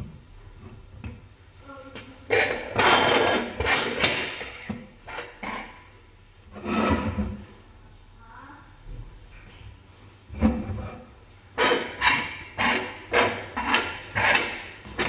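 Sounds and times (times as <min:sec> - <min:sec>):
metal scraping on wooden table: 0:06.5 - 0:07.4, 0:10.4 - 0:15.0.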